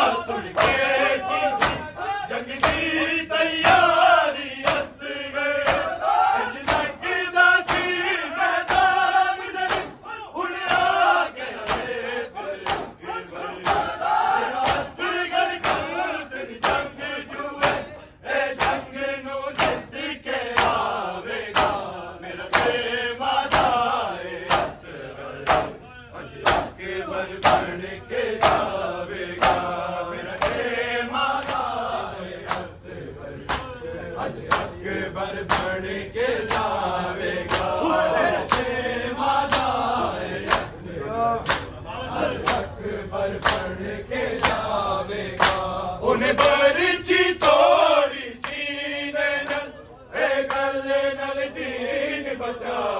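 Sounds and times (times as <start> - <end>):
men chanting in unison: 0.0 - 52.9
chest-beating slaps: 0.4 - 6.0, 6.6 - 9.0, 9.6 - 12.0, 12.6 - 14.0, 14.6 - 16.0, 16.6 - 17.0, 17.6 - 17.9, 18.6 - 21.9, 22.5 - 22.9, 23.5 - 25.8, 26.4 - 27.8, 28.4 - 30.7, 32.4 - 32.8, 33.4 - 33.8, 34.4 - 34.8, 35.4 - 35.8, 36.4 - 36.8, 37.4 - 38.8, 39.4 - 39.8, 40.4 - 40.8, 41.4 - 41.8, 42.4 - 42.8, 43.4 - 43.7, 44.3 - 45.7.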